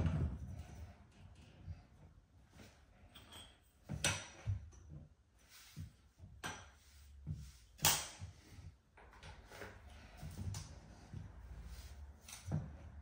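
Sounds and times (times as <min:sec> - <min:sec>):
metal pipes clicking and knocking: 0:03.0 - 0:05.1.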